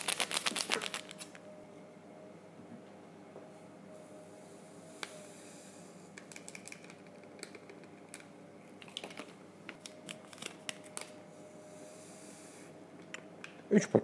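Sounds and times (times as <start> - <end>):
paper sachets clicking and crinkling: 0.0 - 1.4, 6.2 - 11.2.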